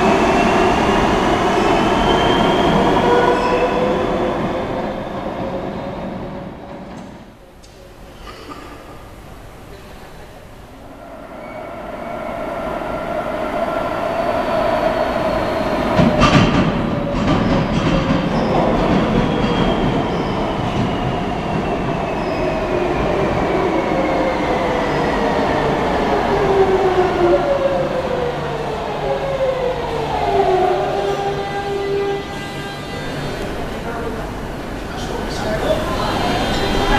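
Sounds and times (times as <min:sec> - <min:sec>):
train arriving at station: 0:00.0 - 0:36.9.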